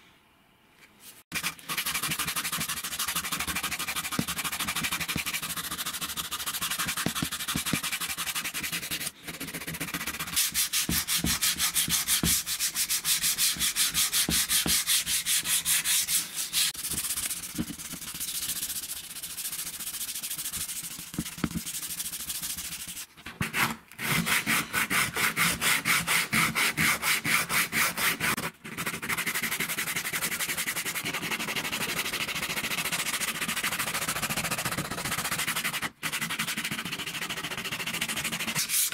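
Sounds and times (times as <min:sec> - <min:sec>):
sandpaper rasping on metal: 0:01.3 - 0:21.1, 0:33.0 - 0:38.9.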